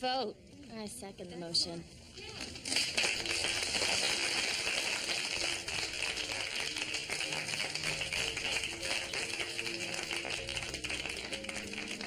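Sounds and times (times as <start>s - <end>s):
crowd applauding: 2.5s - 12.0s.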